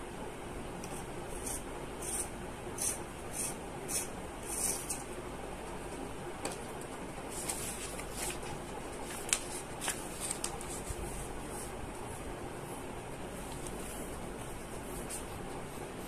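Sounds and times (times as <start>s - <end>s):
paper sliding and rustling: 7.3s - 11.8s.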